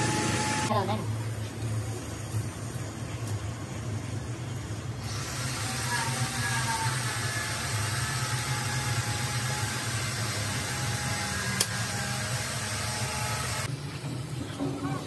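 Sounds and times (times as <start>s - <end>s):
machine hum: 0.0s - 14.8s.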